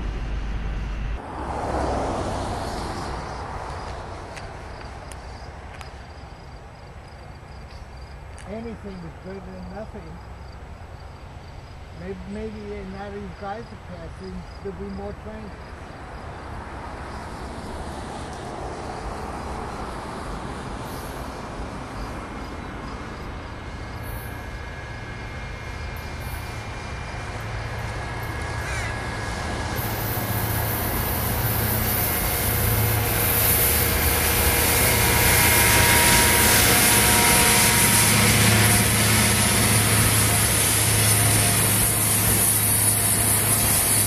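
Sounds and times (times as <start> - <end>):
diesel engines droning: 0.0 - 44.0
wheels rolling on rails: 17.6 - 44.0.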